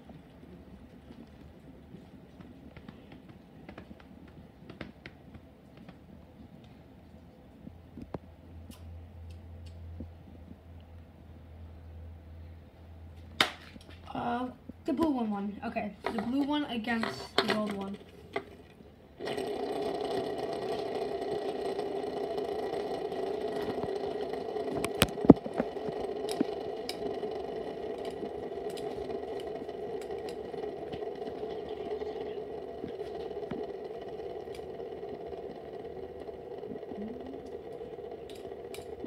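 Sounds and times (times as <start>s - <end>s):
fidget spinners whirring: 15.8s - 39.0s.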